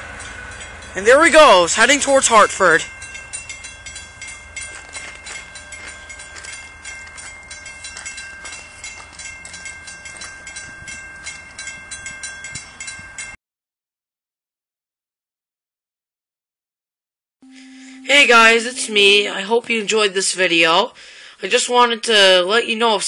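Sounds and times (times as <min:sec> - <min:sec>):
crossing bell ringing: 0:00.0 - 0:13.4, 0:17.4 - 0:20.5.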